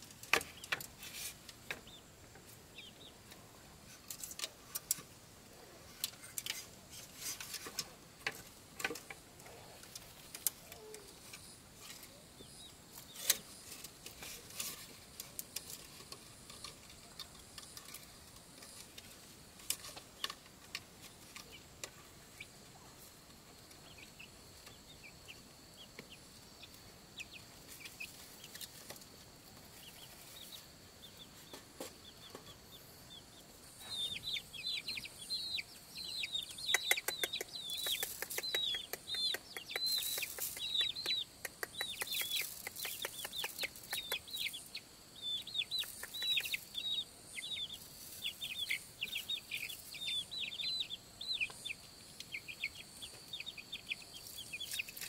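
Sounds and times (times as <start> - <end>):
chickens clucking softly: 18.4 - 55.0
sharp clicks and taps: 36.6 - 44.3.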